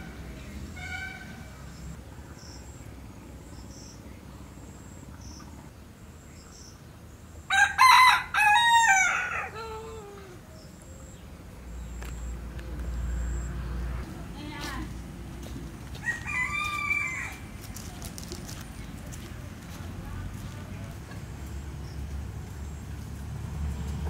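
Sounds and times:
rooster crowing: 7.5s - 10.4s, 15.9s - 17.7s.

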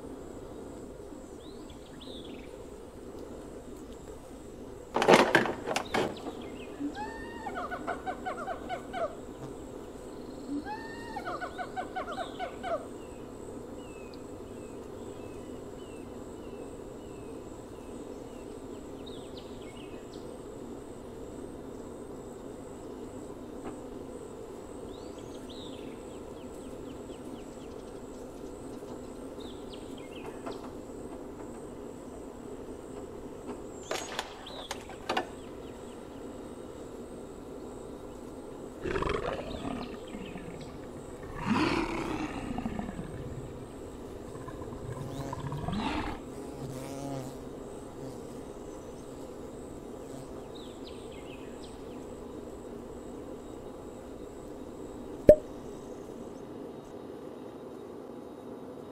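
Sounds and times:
chimpanzee calls: 6.8s - 9.2s, 10.5s - 12.8s
lion roar: 38.8s - 46.3s.

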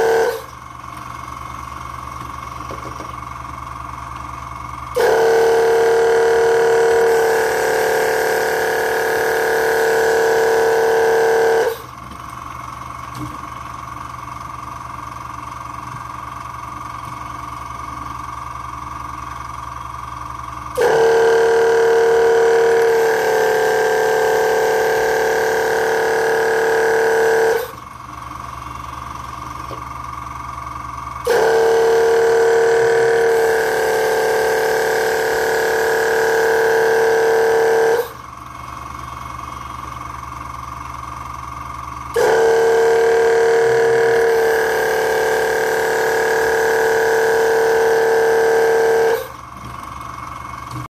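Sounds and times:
robot mechanical whine: 31.3s - 40.3s, 42.2s - 49.4s.

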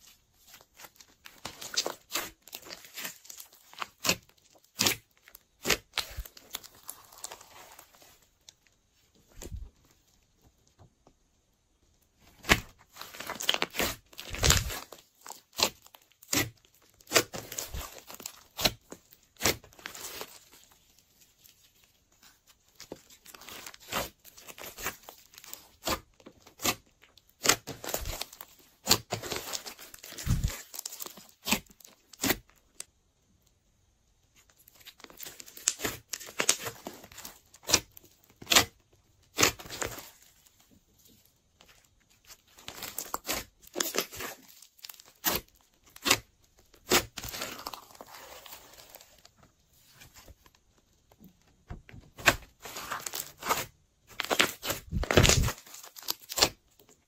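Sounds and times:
slime crackling and popping: 0.7s - 8.6s, 12.4s - 20.4s, 42.2s - 49.4s, 52.1s - 56.9s.

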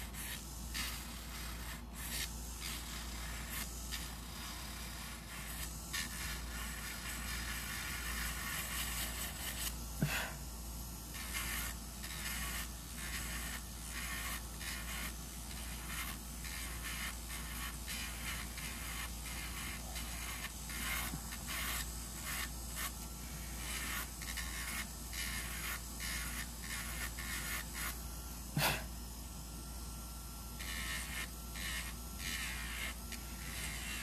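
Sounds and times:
nail drill grinding: 11.1s - 28.8s, 30.6s - 34.0s.

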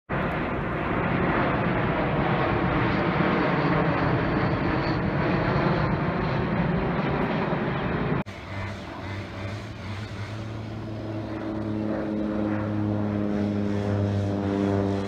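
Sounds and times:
jet airliner flying overhead: 0.1s - 15.0s.

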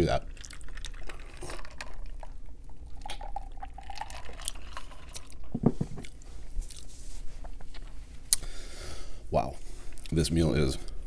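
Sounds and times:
gulping and swallowing a drink: 0.2s - 5.5s.

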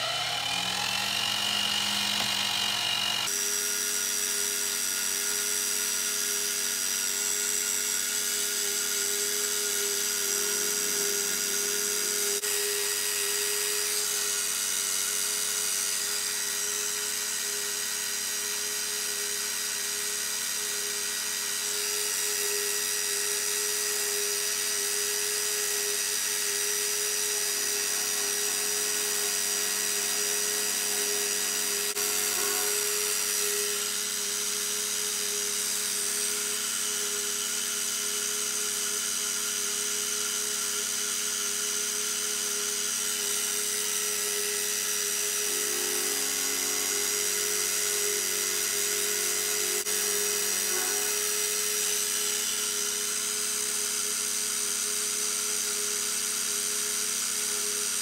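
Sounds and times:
milling machine cutting metal: 0.0s - 54.0s.

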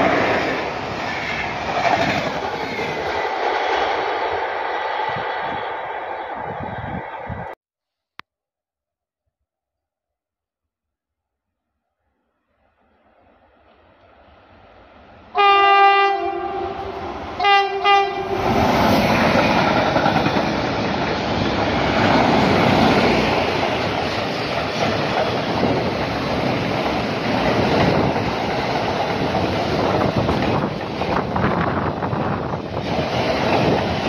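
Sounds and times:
train wheels on rails: 0.0s - 7.5s, 16.8s - 34.0s
locomotive horn blasts: 15.3s - 18.4s.

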